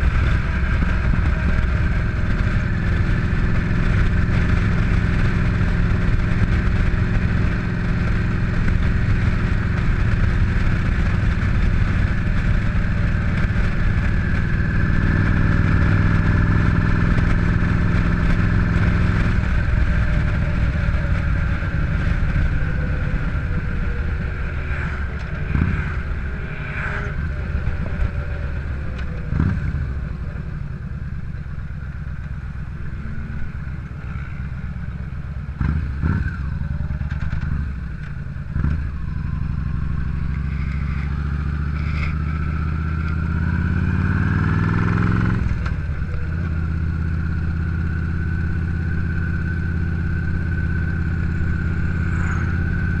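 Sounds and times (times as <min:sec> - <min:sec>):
muffled motorcycle engine: 0:00.0 - 0:53.0.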